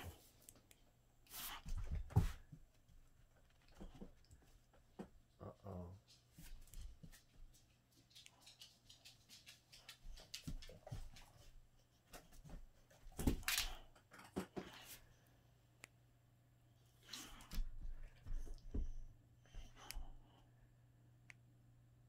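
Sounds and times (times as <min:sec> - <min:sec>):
dog claws clicking on floor: 0:06.6 - 0:11.5.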